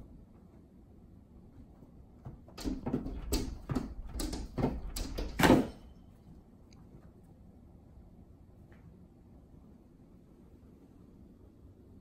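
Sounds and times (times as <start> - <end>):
knocks and scrapes on glass door: 2.2 - 5.8.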